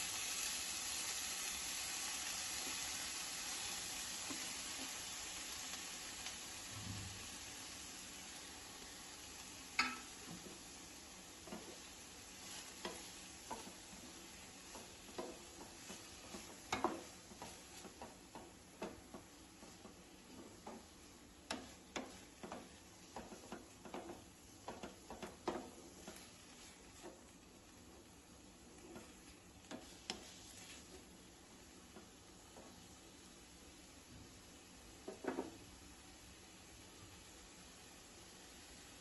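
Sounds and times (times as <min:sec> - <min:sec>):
faint sizzle: 0:00.0 - 0:39.0
wooden spatula scraping metal pan: 0:11.4 - 0:27.4, 0:28.7 - 0:31.1.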